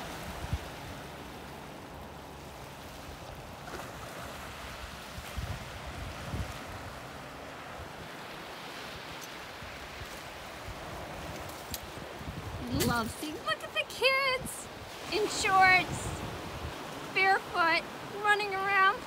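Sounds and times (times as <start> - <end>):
waves washing onto rocky shore: 0.0 - 19.0
wind bumps on microphone: 5.1 - 7.0, 10.0 - 13.3.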